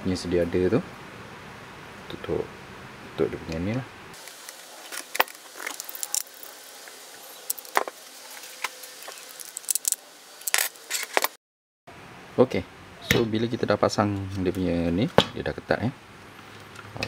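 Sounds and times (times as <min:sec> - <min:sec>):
small metal parts clinking: 0:04.3 - 0:06.6, 0:07.4 - 0:08.0, 0:08.6 - 0:11.3.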